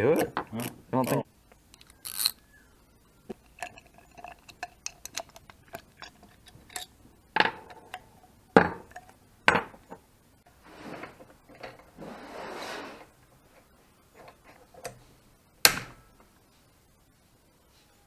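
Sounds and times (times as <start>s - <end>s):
metal parts clinking: 0.0s - 2.4s, 3.4s - 9.1s.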